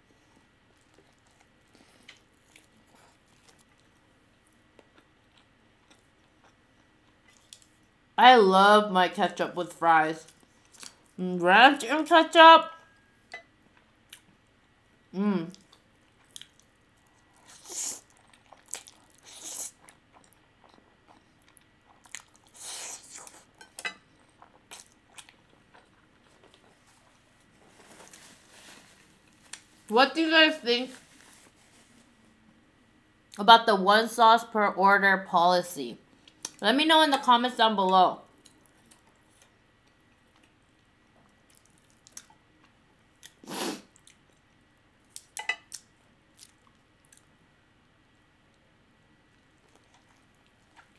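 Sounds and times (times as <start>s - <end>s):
wet chewing: 17.3s - 27.0s, 38.4s - 44.4s, 49.6s - 50.9s.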